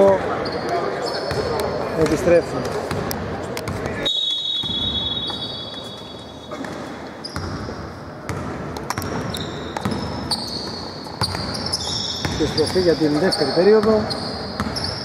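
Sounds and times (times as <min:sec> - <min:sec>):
voices echoing in hall: 0:00.0 - 0:15.0
shoe squeaks: 0:00.3 - 0:01.6, 0:04.0 - 0:07.8, 0:08.9 - 0:15.0
basketballs bouncing on court: 0:01.2 - 0:05.5, 0:06.5 - 0:15.0.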